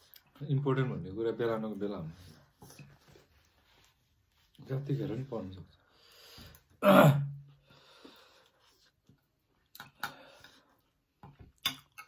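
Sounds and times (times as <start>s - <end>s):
breathy vocal noise: 6.4s - 8.2s.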